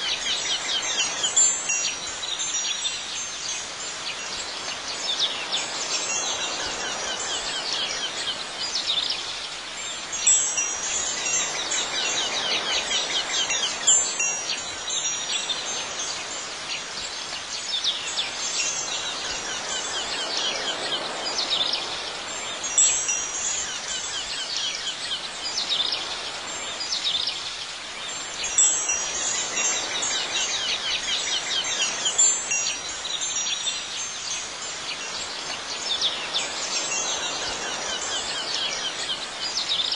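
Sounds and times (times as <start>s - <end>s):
wind chimes tinkling: 0.0s - 39.9s.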